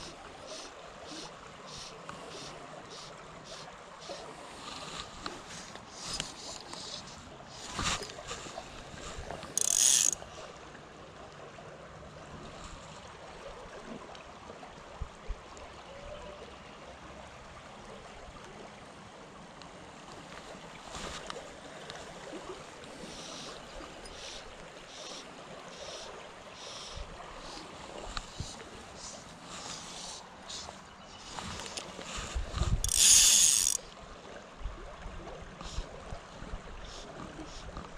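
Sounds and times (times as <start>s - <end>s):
creek running: 0.0s - 37.9s
fly line stripping rustles: 4.6s - 10.2s, 26.7s - 33.8s.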